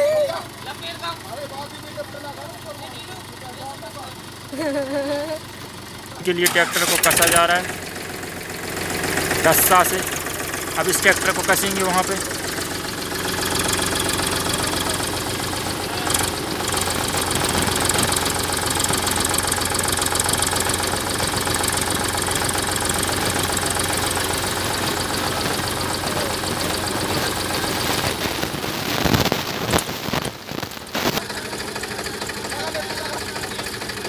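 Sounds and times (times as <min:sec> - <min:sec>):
diesel tractor engines running: 0:00.0 - 0:34.0.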